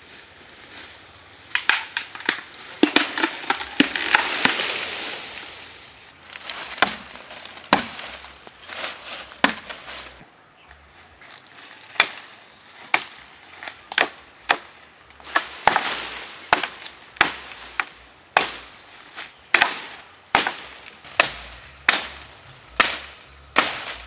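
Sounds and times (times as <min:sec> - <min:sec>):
axe chopping bamboo: 0:01.5 - 0:04.7, 0:06.3 - 0:10.2, 0:11.9 - 0:24.0.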